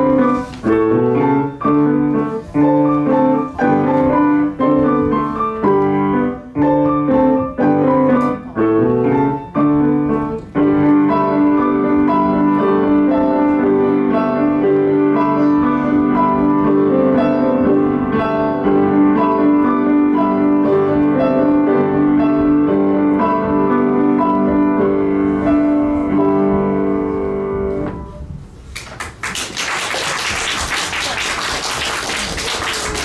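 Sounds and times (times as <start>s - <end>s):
piano duet: 0.0s - 33.0s
audience applauding: 28.8s - 33.0s.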